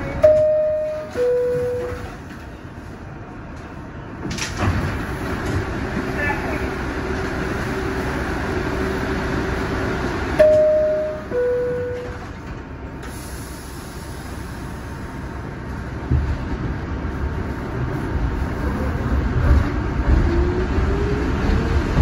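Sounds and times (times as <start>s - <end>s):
train car humming: 0.0s - 22.0s
train rumbling: 0.0s - 22.0s
two-tone door chime: 0.2s - 2.1s, 10.4s - 12.2s.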